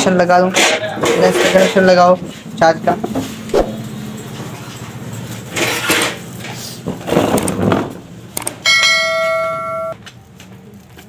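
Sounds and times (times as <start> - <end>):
whooshing noises: 3.5 - 4.1
bell-like chime: 8.7 - 10.0.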